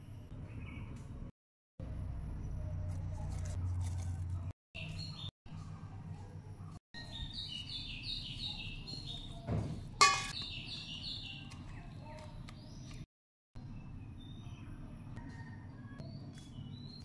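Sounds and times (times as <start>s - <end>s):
metal spoon clinking on bowl: 10.0s - 10.4s.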